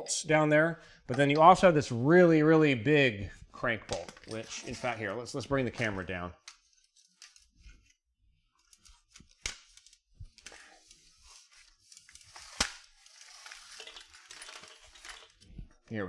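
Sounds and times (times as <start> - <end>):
camera handling rubbing and scraping: 4.0 - 8.0.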